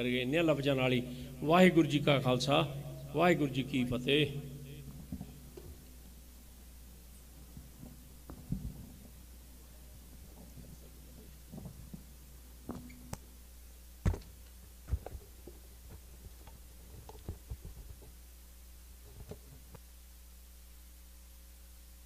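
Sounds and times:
sound system electrical hum: 0.0s - 22.0s
knocks and thumps: 7.5s - 9.2s, 14.0s - 16.4s.

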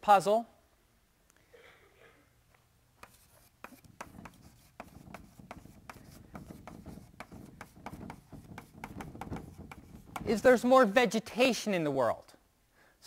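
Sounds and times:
pen scratching handwriting: 3.0s - 10.5s.

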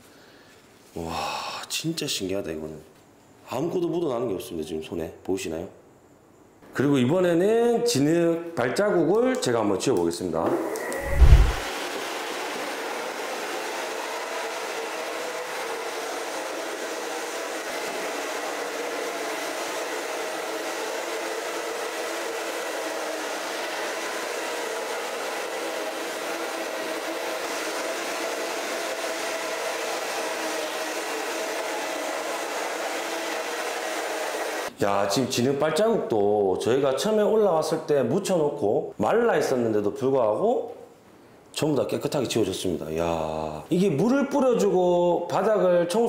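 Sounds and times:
floor scrubber running: 10.5s - 34.7s.

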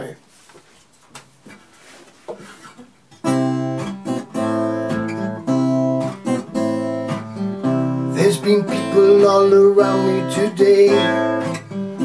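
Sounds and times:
acoustic guitar strumming chords: 3.2s - 12.0s.

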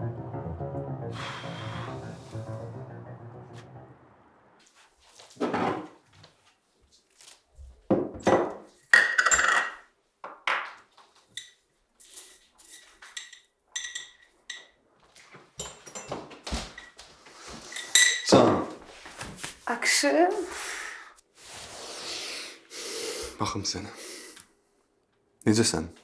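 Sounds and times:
dishes and cutlery clinking: 8.2s - 18.8s.

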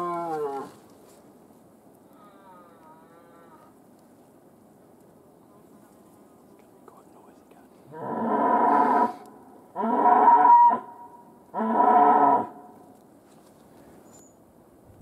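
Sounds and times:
thin whistling tone: 14.0s - 14.4s.

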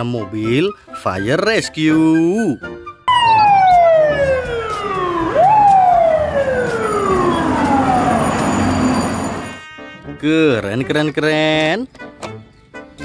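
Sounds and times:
fire truck siren winding: 3.1s - 9.6s.

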